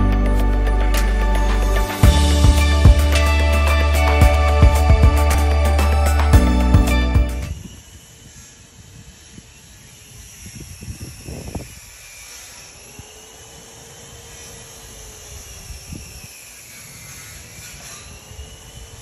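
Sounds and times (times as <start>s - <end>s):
distant motor drone: 0.0s - 19.0s.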